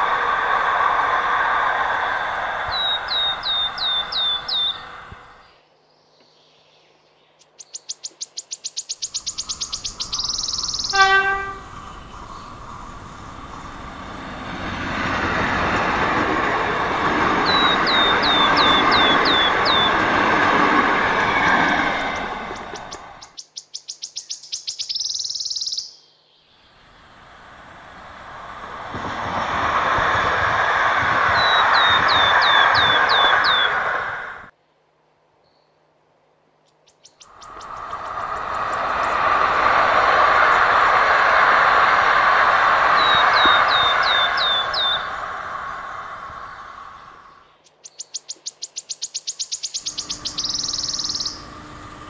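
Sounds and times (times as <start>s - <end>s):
passing train rumble: 0.0s - 5.6s, 9.1s - 23.4s, 26.5s - 34.6s, 37.2s - 47.6s, 49.7s - 52.0s
songbird trilling: 2.7s - 4.9s, 7.4s - 11.2s, 17.4s - 20.1s, 22.5s - 26.0s, 31.4s - 33.8s, 43.0s - 45.1s, 47.6s - 51.5s
bird chirps: 2.7s - 12.6s, 17.4s - 20.1s, 22.2s - 26.6s, 31.3s - 34.0s, 36.6s - 39.2s, 43.0s - 45.2s, 47.0s - 51.5s
steady high insect buzz: 8.9s - 15.0s, 49.8s - 52.0s
locomotive horn blast: 10.9s - 11.8s
high chirping trill: 49.5s - 51.5s.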